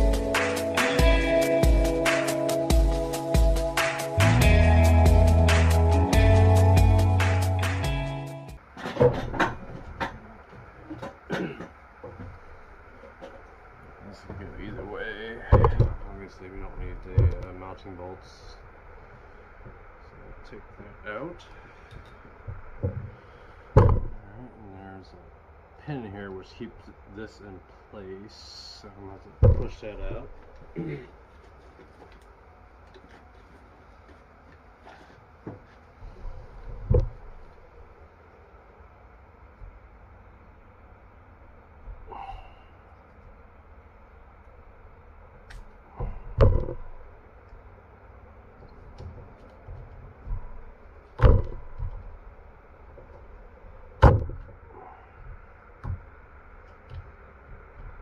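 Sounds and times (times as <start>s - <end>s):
dull knocks: 15.4s - 16.0s, 23.8s - 24.2s, 29.4s - 30.0s, 36.3s - 37.3s, 46.0s - 47.0s, 48.8s - 52.2s, 54.0s - 54.6s.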